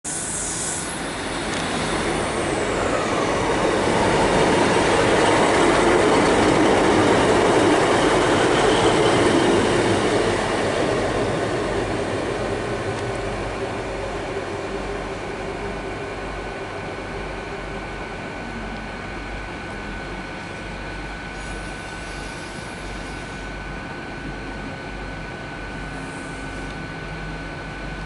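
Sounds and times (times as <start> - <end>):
diesel train engine running: 0.0 - 28.0
train wheels on rails: 0.1 - 18.1
high whine falling in pitch: 0.1 - 25.0.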